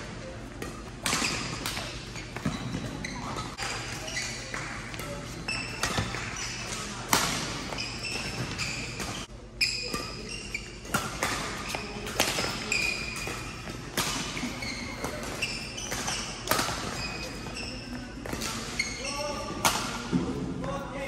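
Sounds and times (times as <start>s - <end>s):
shoes squeaking on court: 0.1s - 20.8s
racket hitting shuttlecock: 0.6s - 2.9s, 3.6s - 9.2s, 9.8s - 17.6s, 19.6s - 20.2s.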